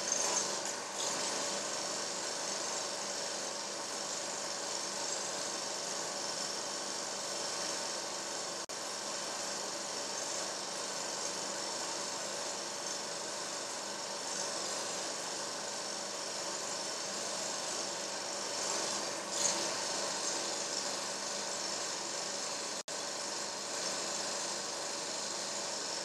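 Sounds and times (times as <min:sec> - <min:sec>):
mechanical whirring drone with hiss: 0:00.0 - 0:26.0.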